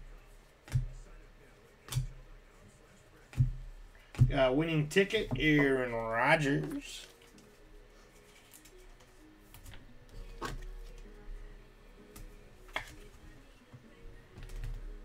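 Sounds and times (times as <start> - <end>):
faint background music: 0.0 - 15.0
trading cards being handled: 5.4 - 11.1.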